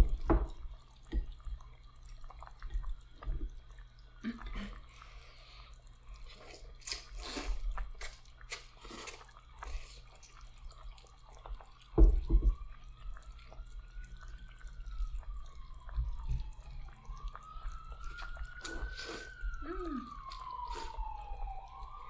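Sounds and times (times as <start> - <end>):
low steady hum: 0.0 - 22.0
noodles slurped: 4.2 - 11.6, 18.0 - 21.0.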